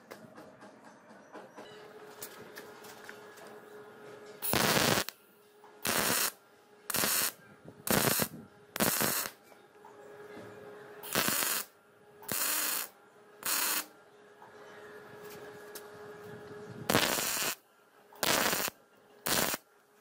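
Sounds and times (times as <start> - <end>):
welder bursts: 4.4 - 5.2, 5.8 - 9.4, 11.0 - 11.7, 12.3 - 13.9, 16.9 - 17.6, 18.2 - 19.6.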